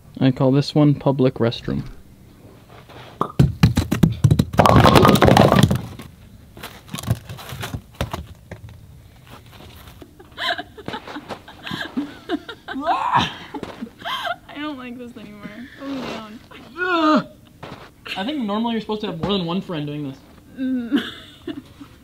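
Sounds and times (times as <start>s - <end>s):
voices: 10.4s - 21.1s.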